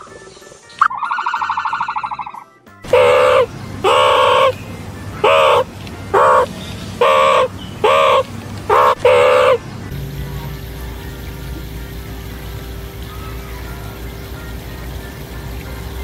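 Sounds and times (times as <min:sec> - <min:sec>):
warbling trill: 0:00.8 - 0:04.6, 0:05.2 - 0:09.6
rising and falling calls: 0:00.8 - 0:09.7.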